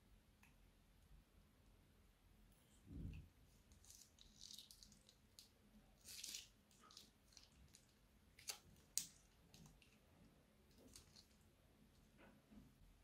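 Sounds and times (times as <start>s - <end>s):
slime squishing and crackling: 3.6s - 11.6s.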